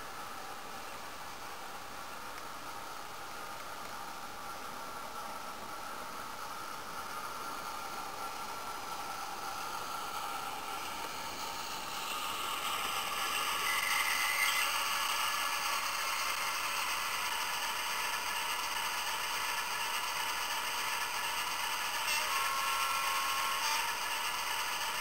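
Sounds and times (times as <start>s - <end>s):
simulated diesel engine sound: 5.3s - 25.0s.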